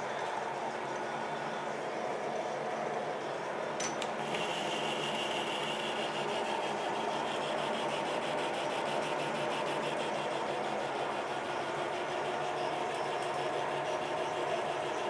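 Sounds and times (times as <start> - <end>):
metal lathe motor hum: 0.1 - 15.0
lathe tool scraping steel: 4.2 - 15.0.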